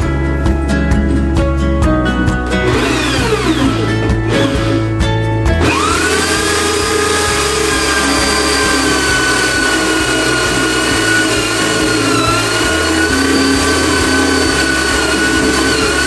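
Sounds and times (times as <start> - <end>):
electric drill whining: 2.6 - 5.0, 5.6 - 16.0.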